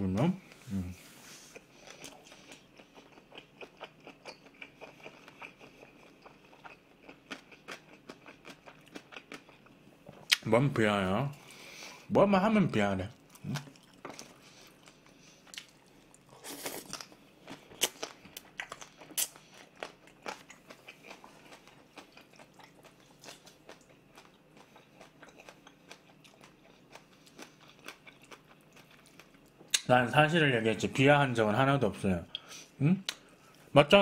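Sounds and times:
chewing food: 0:01.5 - 0:10.4, 0:13.1 - 0:29.9.

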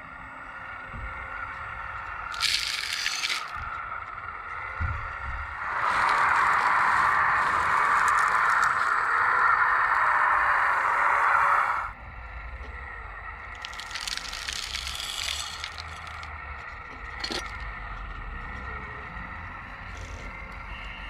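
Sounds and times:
faint motor whine: 0:00.0 - 0:21.0
bucket scraping through stones: 0:02.3 - 0:03.6, 0:13.5 - 0:16.3, 0:17.1 - 0:17.6
small stones rattling into wagon: 0:02.3 - 0:03.7, 0:05.8 - 0:08.9, 0:13.5 - 0:16.3, 0:17.0 - 0:17.6.

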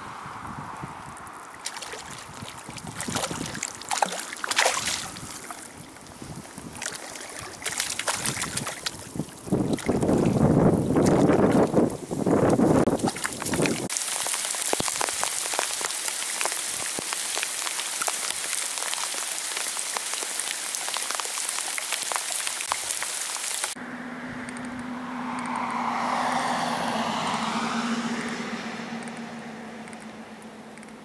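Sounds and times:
rain falling on river: 0:00.0 - 0:10.2, 0:11.0 - 0:23.8, 0:25.4 - 0:31.0
rushing sound: 0:23.7 - 0:31.0.

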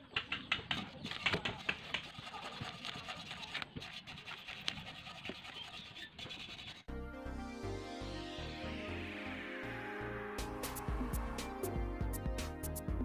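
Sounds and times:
brush scrubbing metal: 0:00.7 - 0:06.9.

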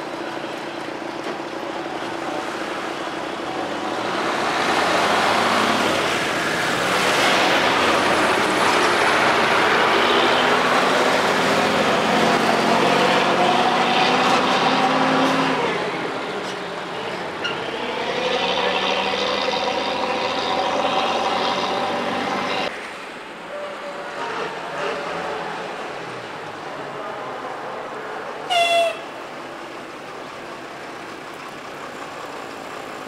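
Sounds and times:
truck engine accelerating: 0:00.0 - 0:22.7
trucks and cars driving past: 0:00.0 - 0:33.0.

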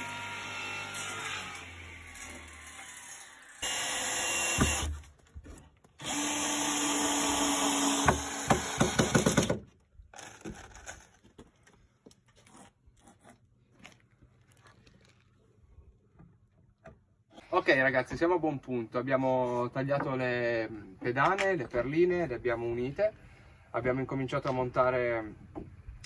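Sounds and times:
drill driving screws into wood: 0:00.0 - 0:05.1, 0:06.0 - 0:11.0.

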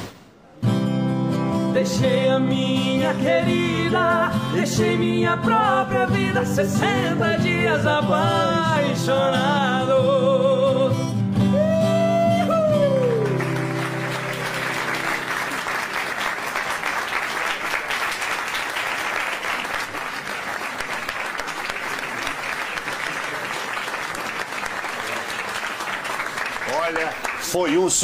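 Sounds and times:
audience applauding: 0:12.3 - 0:28.0.

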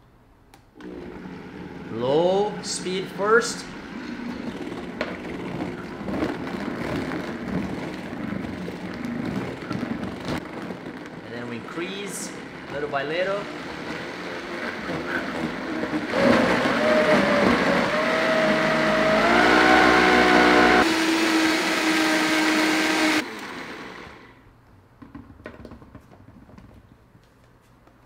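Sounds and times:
blender motor running: 0:00.8 - 0:10.3, 0:13.4 - 0:24.4.

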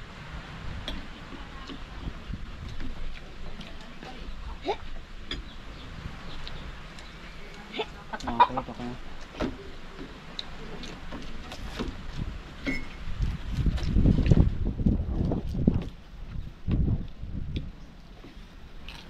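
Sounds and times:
chickens clucking: 0:05.3 - 0:10.4.

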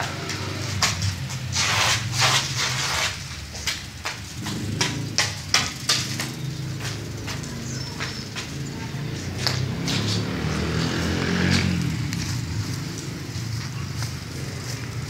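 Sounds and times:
taps and scrapes on concrete: 0:00.0 - 0:15.0.

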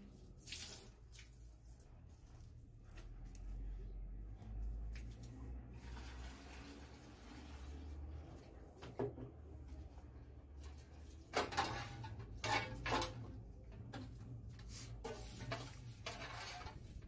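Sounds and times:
water sloshing in a pot: 0:00.0 - 0:03.6, 0:04.4 - 0:17.0
metal pot clanking: 0:11.2 - 0:13.9.

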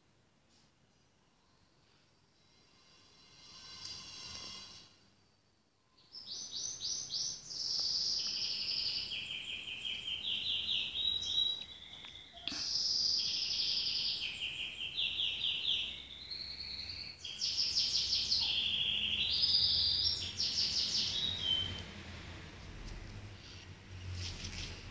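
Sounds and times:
songbird singing trills: 0:06.0 - 0:21.8.

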